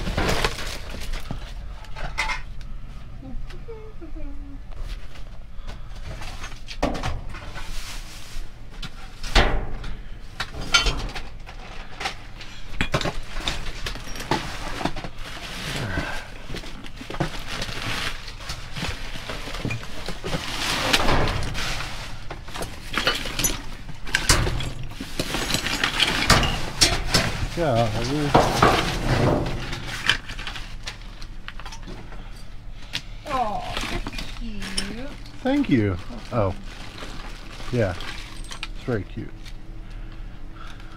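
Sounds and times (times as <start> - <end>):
hard objects clattering and clinking: 22.3 - 32.5.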